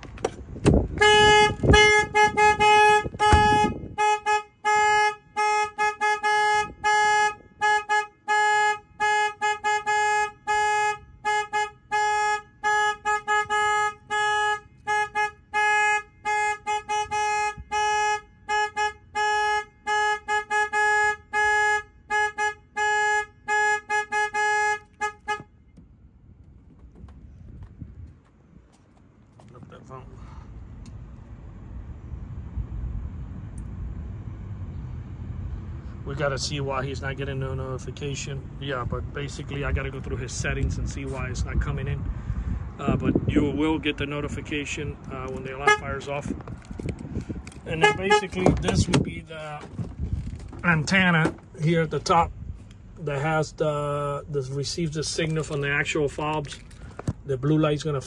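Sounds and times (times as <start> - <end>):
truck horn honking short blasts: 0.7 - 25.8, 45.0 - 51.7.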